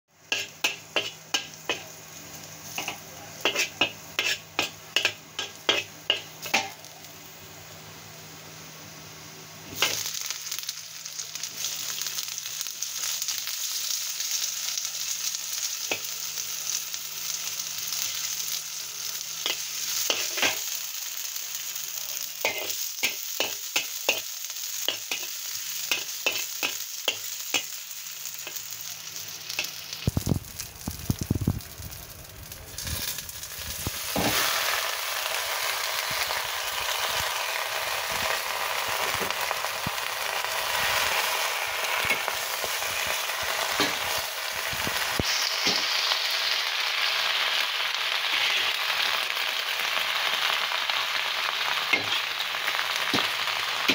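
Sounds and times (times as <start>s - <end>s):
garlic sizzling in oil: 0.1s - 53.9s
spatula scraping a wok: 0.3s - 2.0s, 2.6s - 6.7s, 19.4s - 20.7s, 22.4s - 24.2s, 24.9s - 27.8s, 48.3s - 48.8s.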